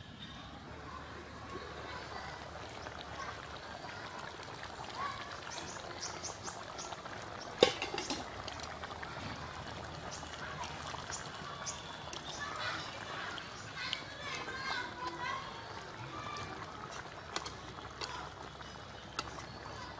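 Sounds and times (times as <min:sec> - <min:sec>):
curry bubbling in pot: 0:00.5 - 0:19.9.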